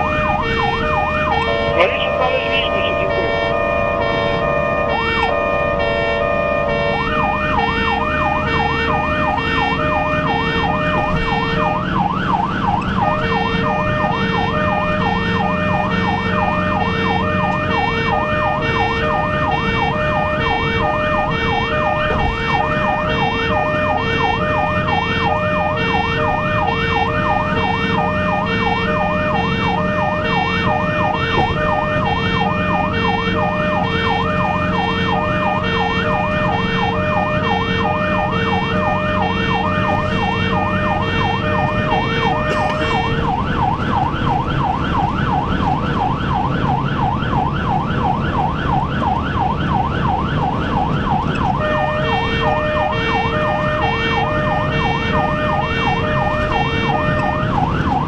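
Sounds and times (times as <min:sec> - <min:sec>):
ambulance siren: 0:00.0 - 0:58.0
road and engine noise: 0:00.0 - 0:58.0.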